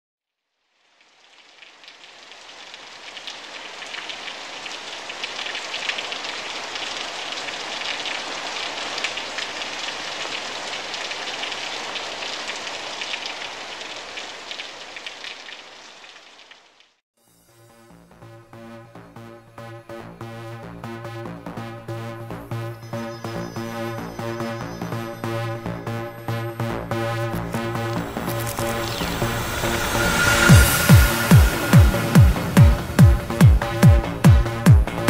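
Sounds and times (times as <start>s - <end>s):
rain pattering: 0.6s - 17.0s, 24.7s - 35.0s.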